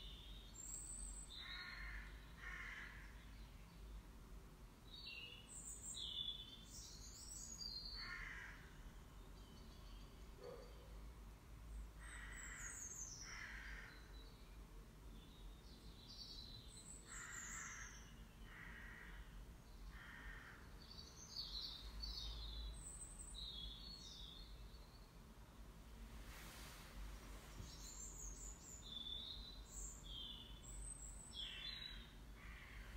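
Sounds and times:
faint bird calls: 0.0s - 3.3s, 7.3s - 8.8s, 12.0s - 14.4s, 16.8s - 25.0s, 26.3s - 32.9s.

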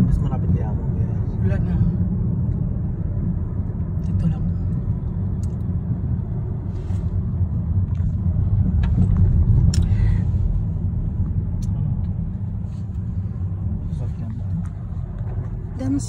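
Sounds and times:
road and engine rumble in car: 0.0s - 16.0s.

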